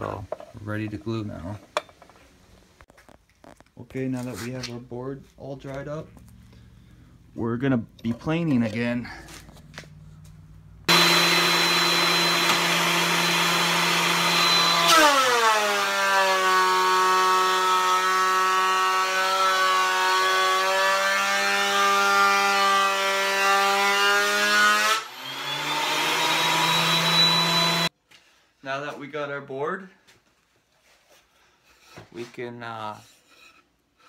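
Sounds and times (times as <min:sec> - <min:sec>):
thickness planer whining: 0:10.9 - 0:27.9.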